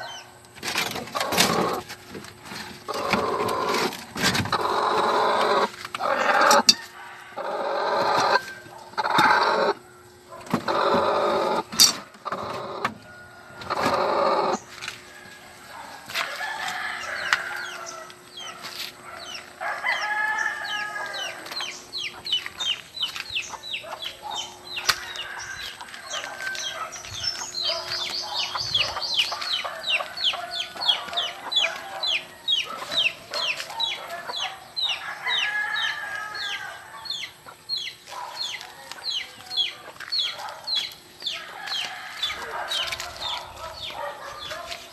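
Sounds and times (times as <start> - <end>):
chickens clucking: 0.0 - 44.9
rooster crowing: 4.6 - 11.7, 12.6 - 18.6, 19.4 - 21.8, 23.8 - 37.5, 41.2 - 44.7.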